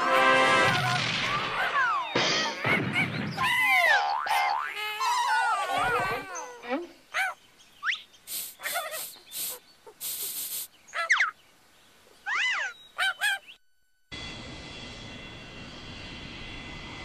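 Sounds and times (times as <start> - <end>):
cartoon bird chirps and squawks: 0.7 - 11.4, 12.2 - 13.5
bursts of hiss: 8.2 - 10.8.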